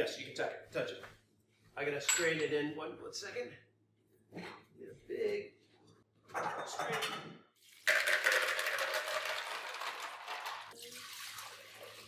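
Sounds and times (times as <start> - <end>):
liquid pouring into a jug: 7.6 - 12.0.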